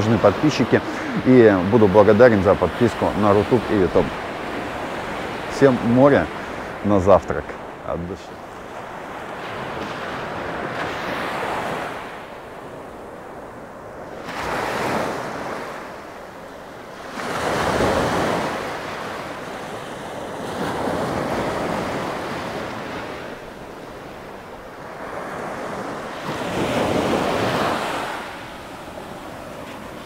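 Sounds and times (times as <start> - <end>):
small waves breaking on beach: 0.0 - 30.0.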